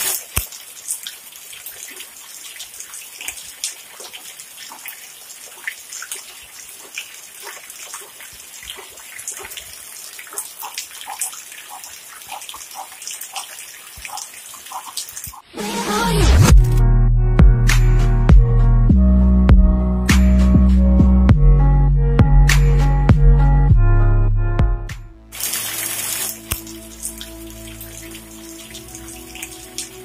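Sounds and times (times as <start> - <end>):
steady rain hiss: 0.0 - 15.4, 25.2 - 30.0
water dripping off roof: 0.0 - 15.4, 25.3 - 30.0.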